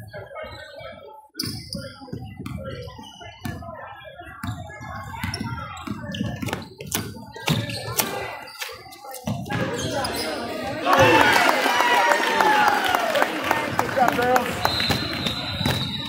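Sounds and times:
people chattering: 0:00.0 - 0:16.0.

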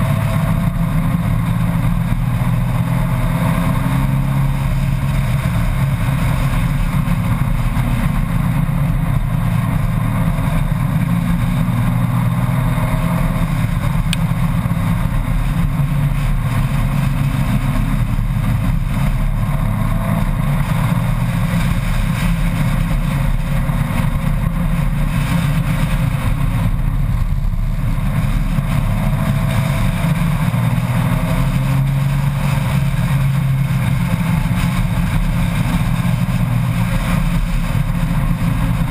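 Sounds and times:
motorcycle engine running: 0:00.0 - 0:38.9
wind and road noise: 0:00.0 - 0:38.9.

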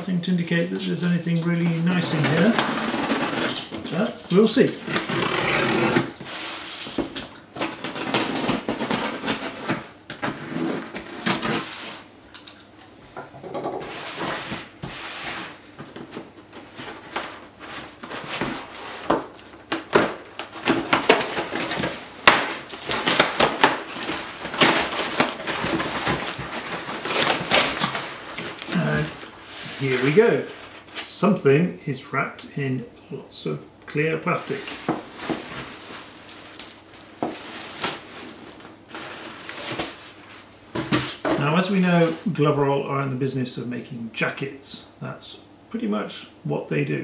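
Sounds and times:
cardboard tearing and rustling: 0:01.5 - 0:12.1, 0:13.8 - 0:31.0, 0:34.4 - 0:42.5
box cutter slicing cardboard: 0:04.8 - 0:06.4, 0:07.6 - 0:12.0, 0:18.0 - 0:29.0.

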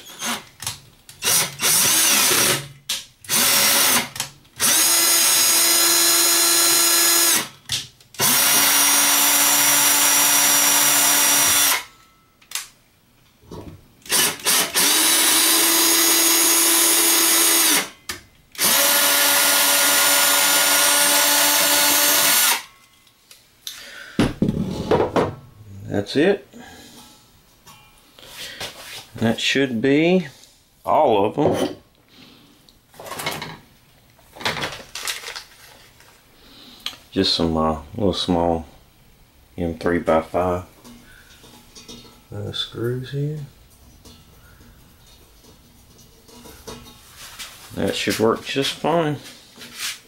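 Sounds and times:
cordless drill whining: 0:00.0 - 0:00.5, 0:01.2 - 0:02.6, 0:03.3 - 0:07.5, 0:08.2 - 0:11.9, 0:14.1 - 0:17.9, 0:18.6 - 0:22.7.

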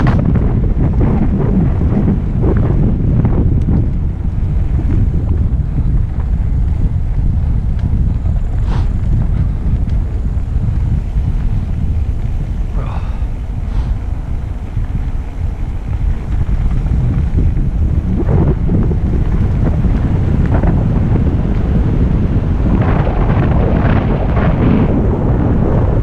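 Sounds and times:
bike knocking and rattling: 0:00.0 - 0:26.0
tyres rumbling on dirt: 0:00.0 - 0:26.0
wind buffeting microphone: 0:00.0 - 0:26.0.

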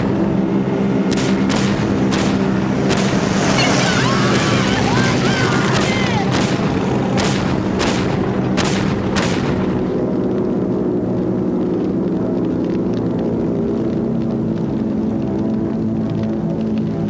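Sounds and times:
constant low rumble: 0:00.0 - 0:17.0
sharp gunshots: 0:01.0 - 0:09.9.

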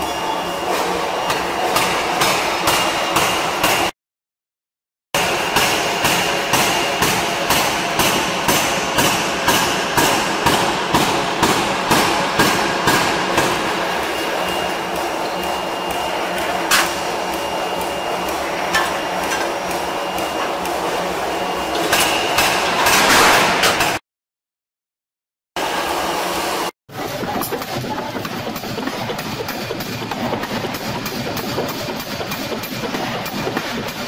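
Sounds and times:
steady machine noise: 0:05.2 - 0:24.0, 0:25.6 - 0:34.0.

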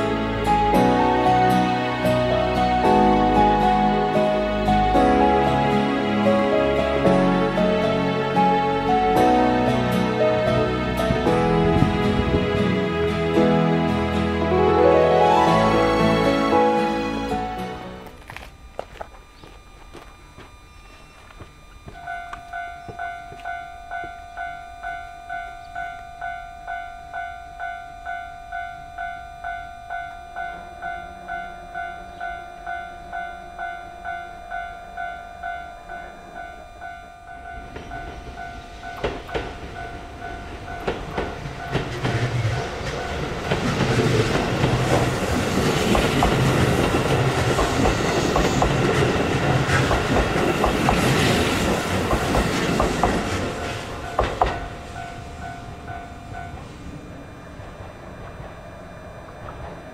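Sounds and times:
level crossing alarm ringing: 0:14.5 - 0:59.9
train wheels clattering: 0:37.6 - 0:55.4.

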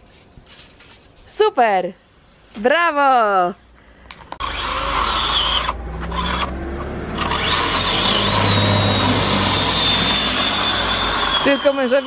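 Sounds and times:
power saw cutting wood: 0:04.4 - 0:12.0.

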